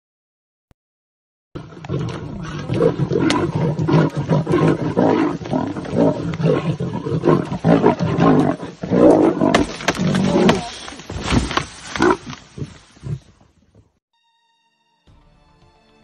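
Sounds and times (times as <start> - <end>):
lion growling: 1.6 - 13.4.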